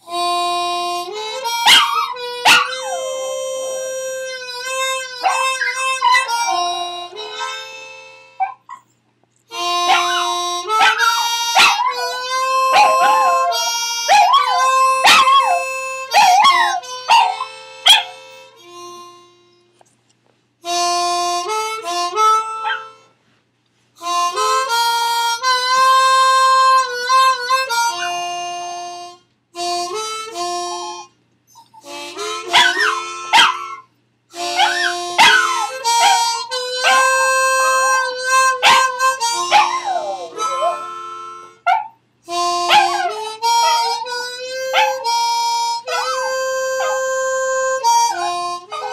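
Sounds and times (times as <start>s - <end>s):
music with held chords: 0.0s - 8.5s, 9.5s - 19.8s, 20.6s - 23.2s, 24.0s - 48.9s
dog howling: 5.2s - 6.6s, 9.9s - 18.1s, 32.5s - 33.6s, 34.6s - 37.1s, 38.6s - 40.9s, 42.7s - 44.1s, 44.7s - 45.0s, 45.9s - 47.1s, 48.0s - 48.9s.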